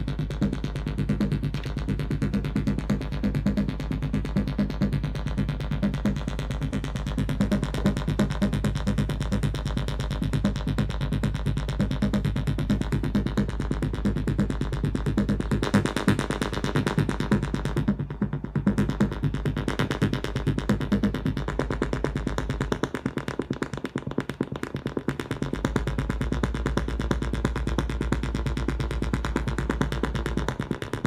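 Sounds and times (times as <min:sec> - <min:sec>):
deep synth bass: 0:00.0 - 0:22.8
sequenced synthesizer pattern: 0:00.0 - 0:31.0.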